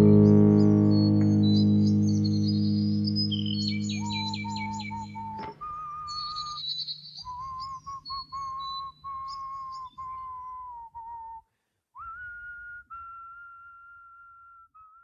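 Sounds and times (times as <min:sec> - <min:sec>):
low hum: 0:00.0 - 0:06.6
high chirps: 0:00.0 - 0:10.7
person whistling long notes: 0:03.0 - 0:06.6, 0:07.2 - 0:11.4, 0:12.0 - 0:15.0.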